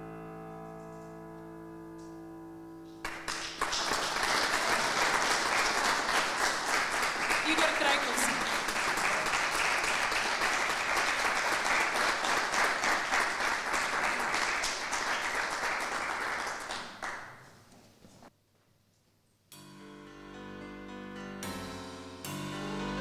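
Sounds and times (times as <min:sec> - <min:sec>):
audience applause: 0:03.0 - 0:17.4.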